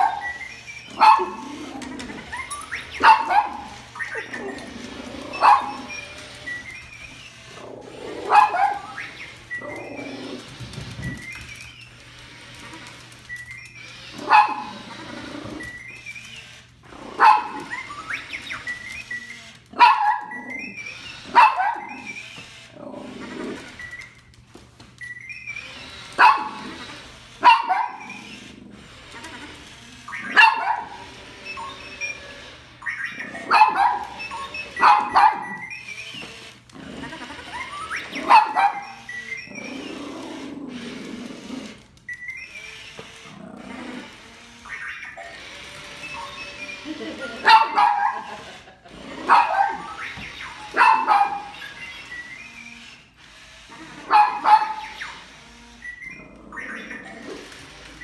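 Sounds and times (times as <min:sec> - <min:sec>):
toy robot electronic chirps: 0:00.0 - 0:24.3, 0:25.0 - 0:41.0, 0:42.1 - 0:48.6, 0:49.4 - 0:58.0
small dog barking: 0:01.0 - 0:01.4, 0:03.0 - 0:03.7, 0:05.3 - 0:05.8, 0:08.2 - 0:08.9, 0:14.2 - 0:14.7, 0:19.8 - 0:20.3, 0:21.3 - 0:22.0, 0:26.2 - 0:26.6, 0:27.4 - 0:28.0, 0:30.3 - 0:31.0, 0:33.4 - 0:34.2, 0:34.8 - 0:35.6, 0:38.2 - 0:39.0, 0:47.4 - 0:48.3, 0:50.7 - 0:51.5, 0:54.0 - 0:54.9.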